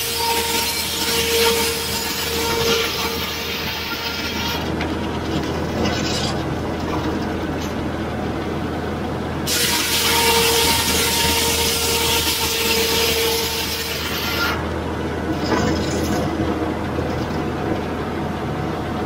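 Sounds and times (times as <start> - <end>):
circular saw cutting log: 0.0 - 6.6, 9.4 - 14.8.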